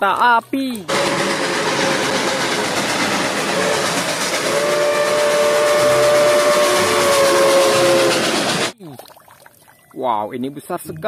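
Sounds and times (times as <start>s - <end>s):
steam engine hiss and rumble: 0.8s - 8.8s
steam locomotive whistle: 0.9s - 8.7s.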